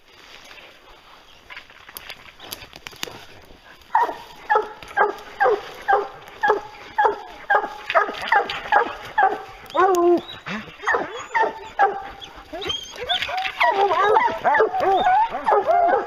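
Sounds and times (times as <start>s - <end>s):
rustling and snapping of brush: 0.0s - 16.0s
hound barking: 3.8s - 16.0s.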